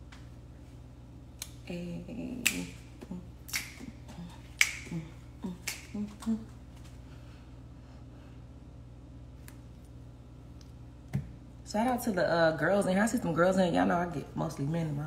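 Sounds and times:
sharp snaps: 0:01.4 - 0:01.6, 0:02.4 - 0:02.8, 0:03.4 - 0:06.4.

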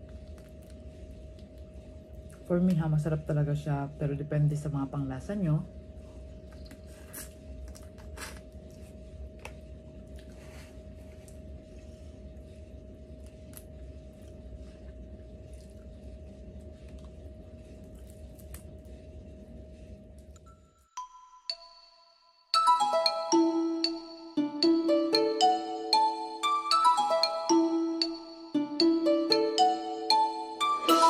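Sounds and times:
steady background hum: 0:00.0 - 0:20.9
chewing: 0:06.4 - 0:11.6, 0:13.1 - 0:18.9.

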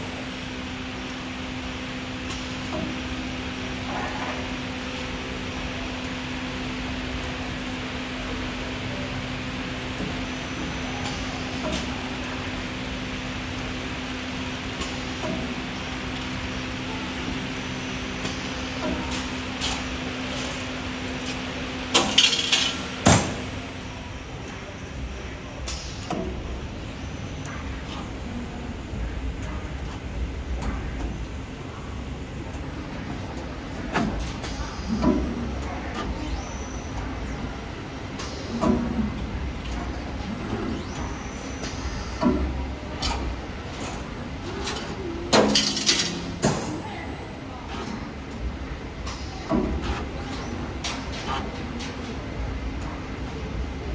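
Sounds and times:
wire bending machine motor hum: 0:00.0 - 0:53.9
machine motor hum: 0:22.9 - 0:45.6.

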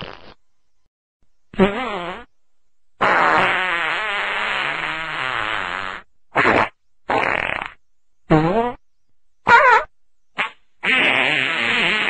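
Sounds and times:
farts: 0:00.0 - 0:00.4, 0:01.6 - 0:02.3, 0:03.0 - 0:08.8, 0:09.5 - 0:12.0.

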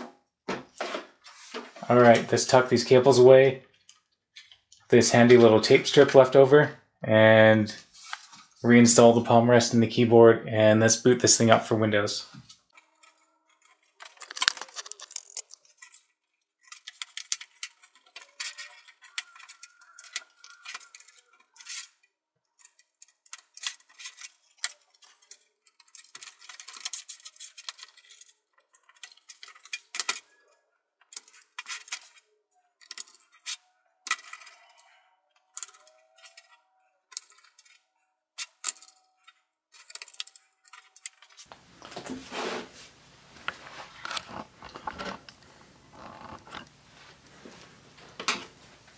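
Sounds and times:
plastic laptop parts clicking: 0:12.6 - 0:30.3, 0:31.0 - 0:37.8, 0:38.4 - 0:41.5.

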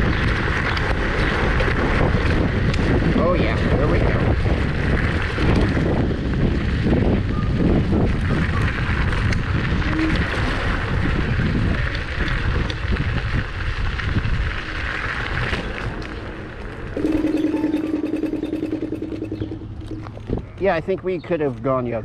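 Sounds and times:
wind buffeting microphone: 0:00.0 - 0:21.4
scooter tyres rumbling on gravel: 0:00.0 - 0:22.0.

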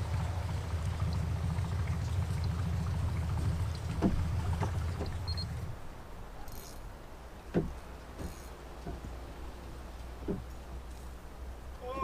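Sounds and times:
low rumble aboard boat: 0:00.0 - 0:12.0
short knocks: 0:03.4 - 0:05.2, 0:07.5 - 0:09.2, 0:10.2 - 0:10.5.

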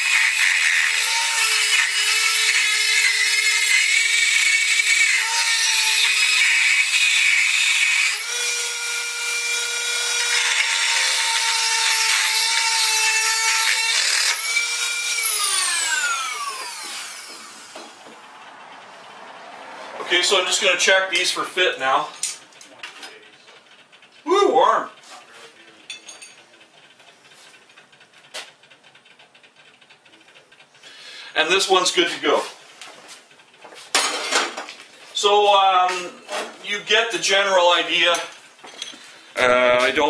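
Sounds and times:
rotary tool grinding metal: 0:00.0 - 0:18.2
rotary tool winding down: 0:00.0 - 0:18.9.

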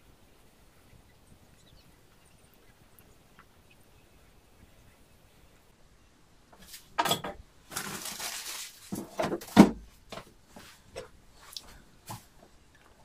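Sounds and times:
utensils and dishes clattering: 0:07.0 - 0:09.7
rustle: 0:07.6 - 0:13.0.

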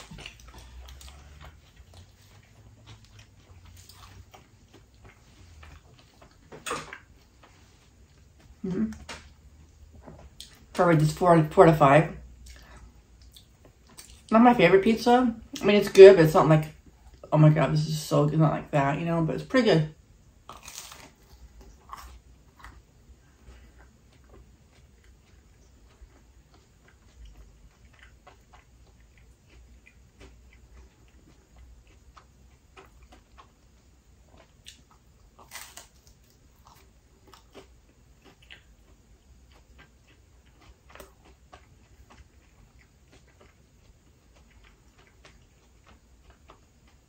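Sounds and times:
chewing crisp crust: 0:00.0 - 0:09.4, 0:20.4 - 0:47.0.

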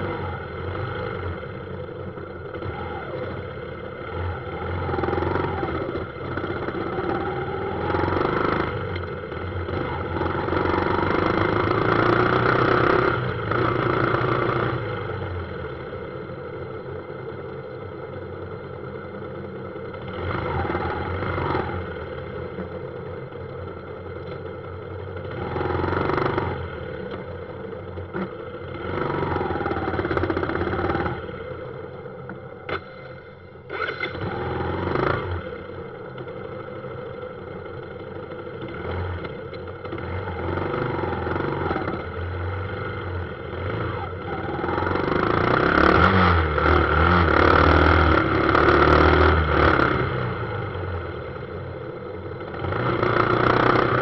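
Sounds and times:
motorbike engine revving: 0:02.4 - 0:15.2, 0:32.7 - 0:36.5, 0:38.5 - 0:51.6, 0:52.3 - 0:54.0.

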